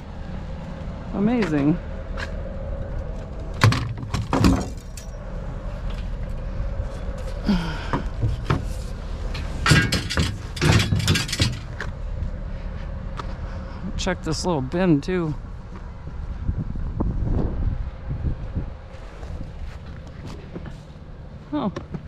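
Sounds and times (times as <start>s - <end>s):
steady low rumble: 0.0s - 21.6s
metal scrap banging and rattling: 3.6s - 5.2s, 8.2s - 11.9s.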